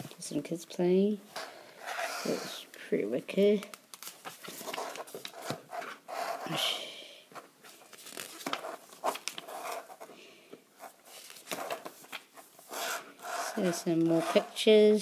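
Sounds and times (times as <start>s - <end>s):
booklet pages turning: 3.4s - 6.5s, 7.3s - 10.2s, 10.8s - 14.8s.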